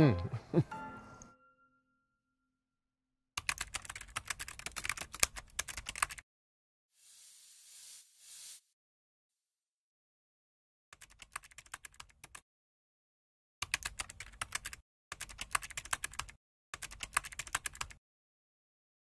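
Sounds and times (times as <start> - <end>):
keyboard typing clicks: 3.4 - 6.2.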